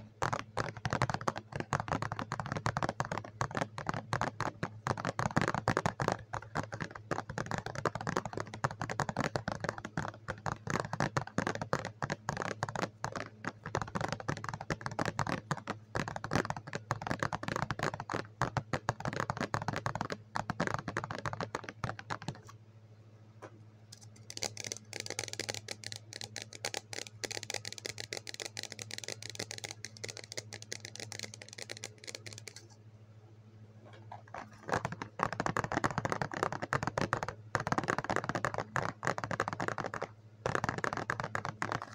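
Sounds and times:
fingers tapping cardboard box: 0.0s - 22.5s, 24.0s - 32.6s, 34.0s - 41.9s
steady low hum: 22.1s - 27.8s, 28.7s - 39.4s.

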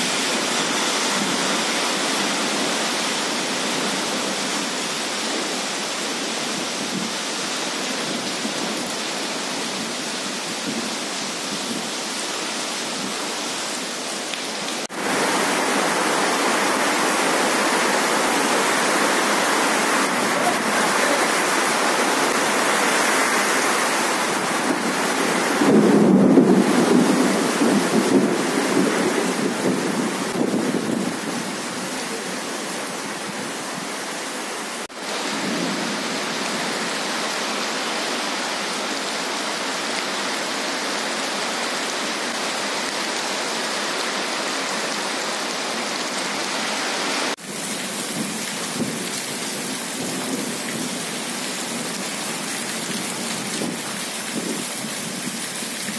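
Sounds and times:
heavy rain falling: 0.0s - 55.9s
thunder rumbling: 24.2s - 31.5s.

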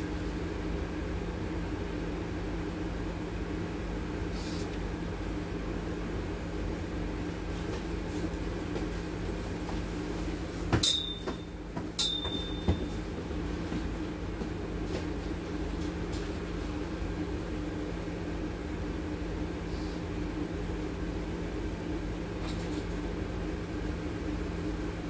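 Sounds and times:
sharp ringing knocks: 10.8s - 13.0s.

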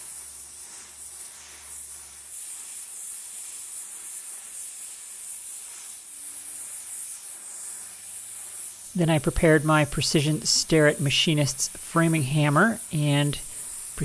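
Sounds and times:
torch flame hissing: 0.0s - 14.0s.

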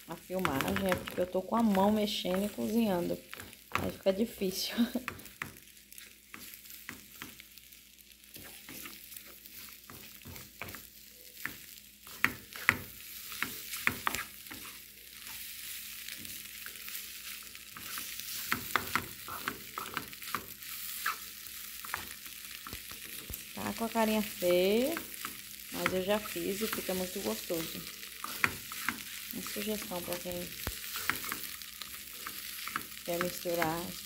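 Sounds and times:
food sizzling in frying pan: 0.0s - 34.0s
spatula scraping pan: 8.3s - 23.3s, 24.3s - 33.7s.

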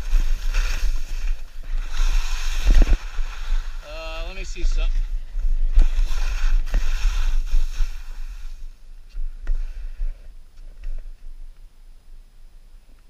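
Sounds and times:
skis scraping over snow: 0.0s - 8.8s.

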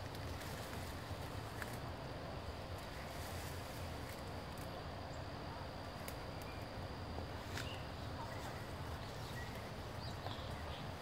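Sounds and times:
footsteps through undergrowth: 0.0s - 1.9s, 2.7s - 4.7s, 7.2s - 11.0s
leaves and stems brushing: 0.0s - 4.9s, 5.9s - 11.0s.

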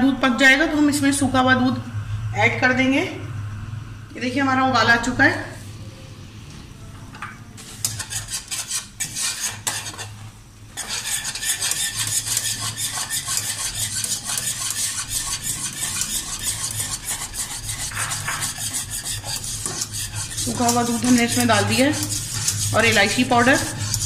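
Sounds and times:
spoon scraping round a pot: 7.6s - 24.0s.

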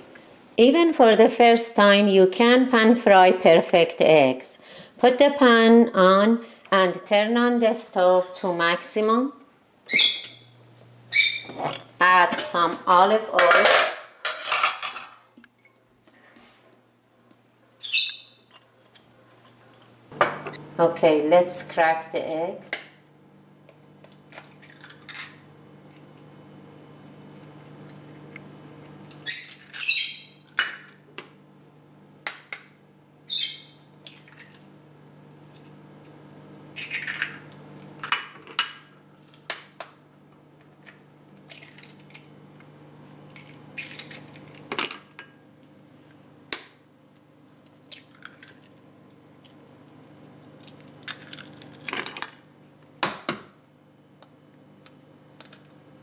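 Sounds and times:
eggshells cracking on pan: 43.3s - 44.9s, 50.6s - 52.4s.

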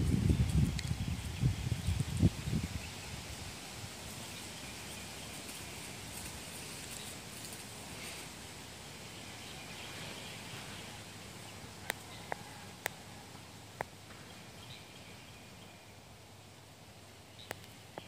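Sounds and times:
steady outdoor hiss: 0.0s - 18.0s
faint ticks: 17.4s - 18.0s.

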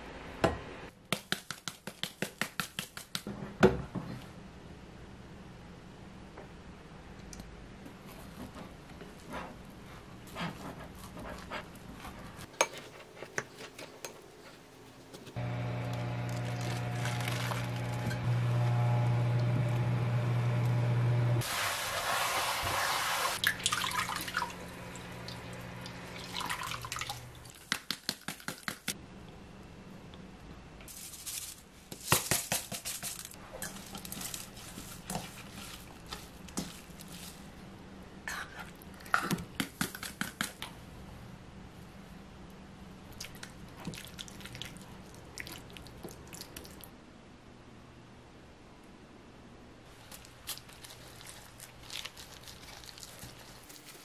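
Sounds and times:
tap water running into colander: 16.2s - 18.3s, 21.4s - 27.4s
hands squelching food in bowl: 33.6s - 37.5s, 43.1s - 46.9s, 49.9s - 54.0s.

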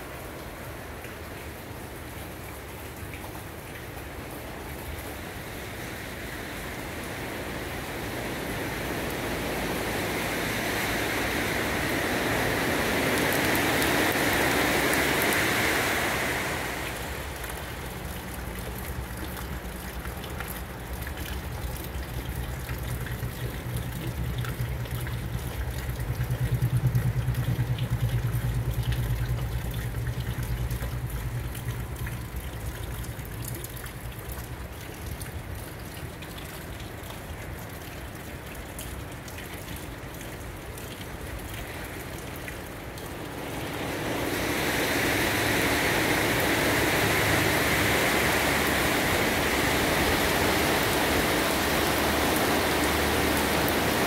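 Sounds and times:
low engine hum: 0.0s - 54.0s
rushing noise: 43.2s - 54.0s.

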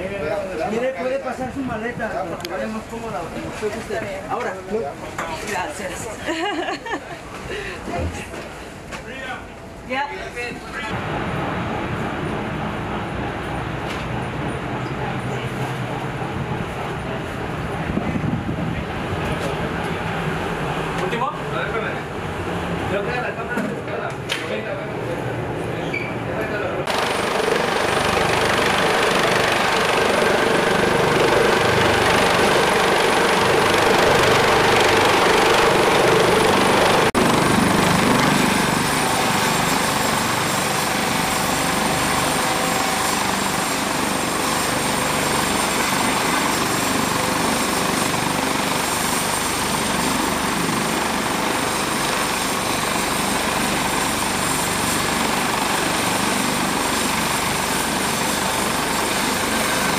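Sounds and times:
helicopter rotor and turbine: 10.9s - 23.4s, 26.8s - 59.9s.

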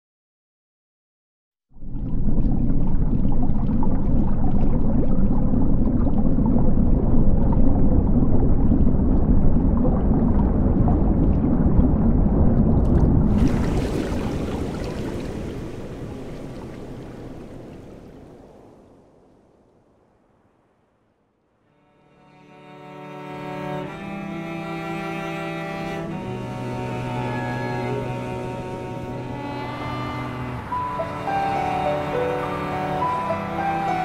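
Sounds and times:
water gurgling: 1.7s - 20.4s
deep underwater rumble: 1.7s - 20.5s.

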